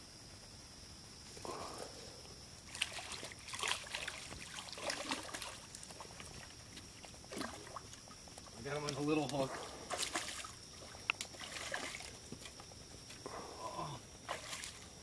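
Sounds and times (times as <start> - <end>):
fish splashing at water surface: 2.7 - 8.2, 9.4 - 12.2, 14.3 - 14.9.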